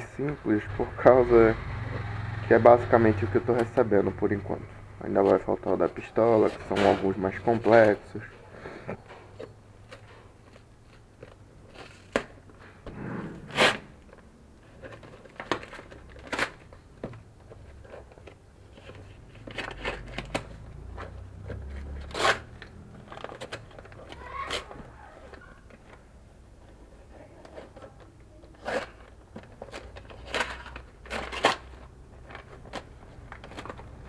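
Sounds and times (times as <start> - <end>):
wrapping paper tearing and crinkling: 21.7 - 25.6, 28.5 - 34.0
knife slitting packing tape: 21.9 - 23.6.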